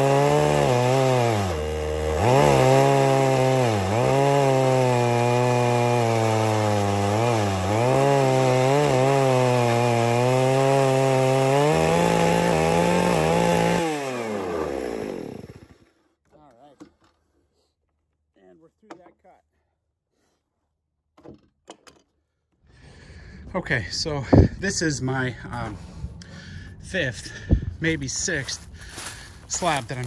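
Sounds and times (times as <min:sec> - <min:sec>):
chainsaw cutting log: 0:00.0 - 0:16.1, 0:28.9 - 0:30.0.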